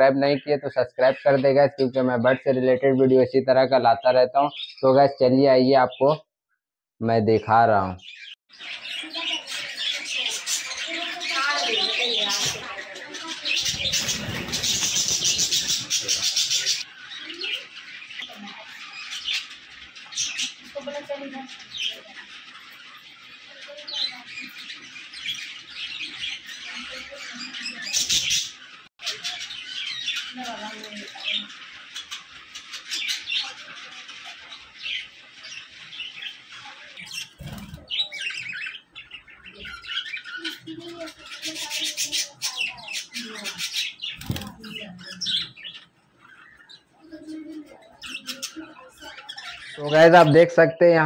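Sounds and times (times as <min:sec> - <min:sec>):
budgerigars chattering and chirping: 0:00.0 - 0:06.2, 0:07.1 - 0:51.0
wings flapping: 0:11.7 - 0:16.8, 0:37.3 - 0:38.0, 0:44.1 - 0:44.9.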